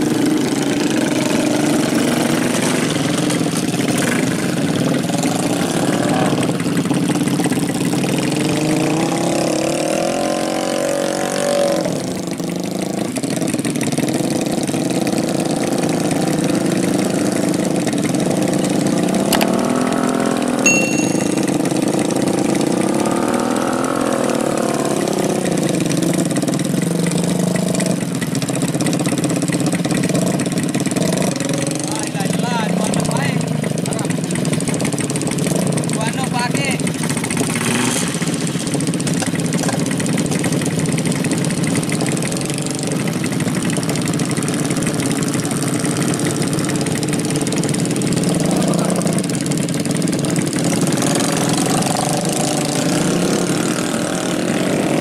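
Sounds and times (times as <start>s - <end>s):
motorcycle engines revving: 0.0s - 55.0s
short high-pitched ring: 20.7s - 21.8s.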